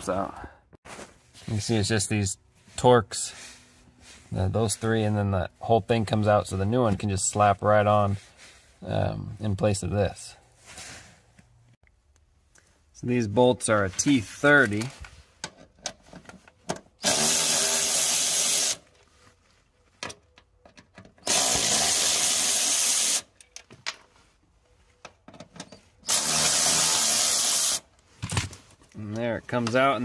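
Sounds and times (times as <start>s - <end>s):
electric ratchet running: 17.0s - 18.8s, 21.2s - 23.3s, 26.1s - 27.8s.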